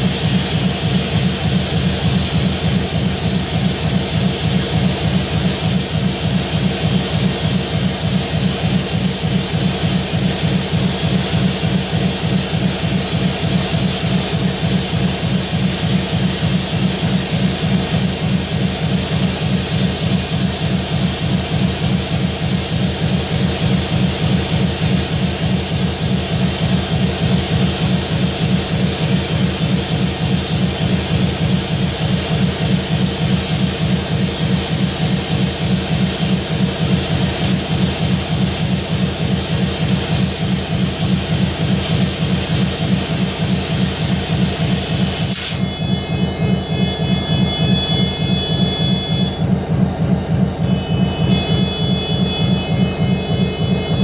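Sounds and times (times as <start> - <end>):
loud hiss: 42.0 - 49.0
locomotive engine idling: 44.3 - 54.0
thin steady high tones: 50.6 - 54.0.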